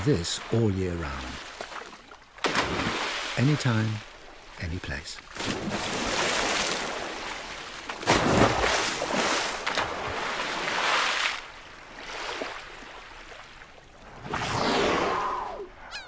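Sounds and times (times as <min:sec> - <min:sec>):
seawater splashing and rushing: 0:00.0 - 0:15.8
whale tail slapping water: 0:01.1 - 0:03.4, 0:05.3 - 0:15.3.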